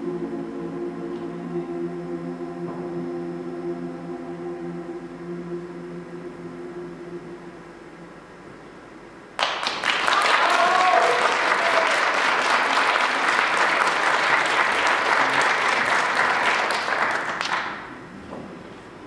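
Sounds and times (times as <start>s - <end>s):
audience applauding: 9.4s - 17.9s
short cheer: 10.0s - 13.3s.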